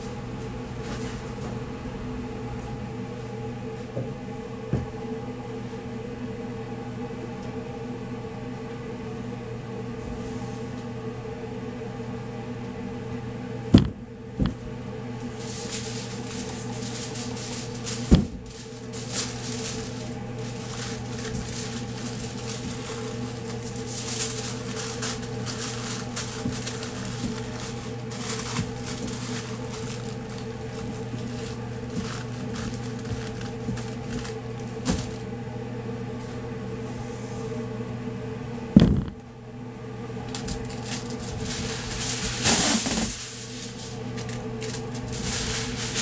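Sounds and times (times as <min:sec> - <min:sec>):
machinery hum: 0:00.0 - 0:46.0
aluminium foil crinkling: 0:15.2 - 0:35.2, 0:40.3 - 0:46.0
sharp knocks: 0:38.8 - 0:39.2.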